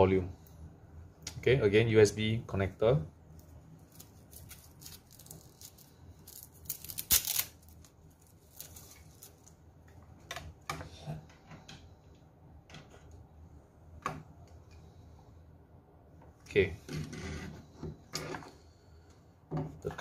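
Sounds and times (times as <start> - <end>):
plastic rustle: 3.9 - 9.5.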